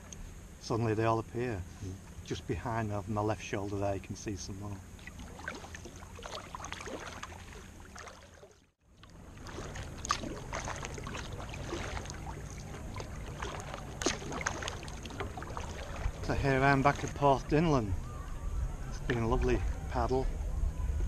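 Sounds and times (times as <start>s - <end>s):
steady low hum: 0.0s - 21.0s
kayak paddle strokes in water: 5.0s - 17.3s
water drips and small splashes: 5.0s - 17.3s.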